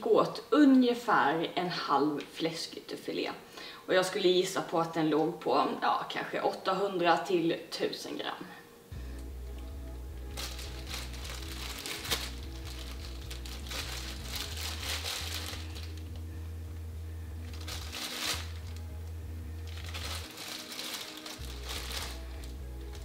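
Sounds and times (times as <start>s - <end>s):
background music with bass line: 8.9s - 23.0s
crinkly rustling and handling noise: 9.6s - 16.3s, 17.3s - 23.0s.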